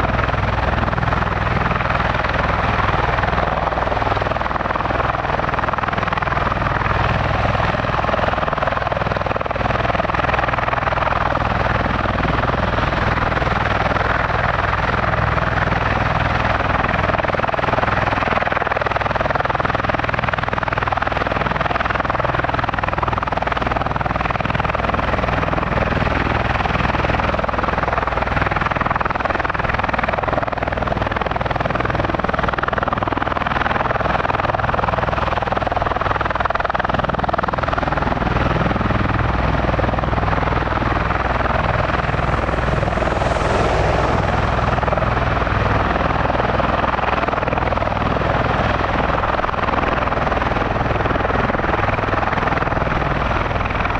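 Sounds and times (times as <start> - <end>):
low rotor drone: 0.0 - 53.9
engines rushing noise: 40.4 - 46.7.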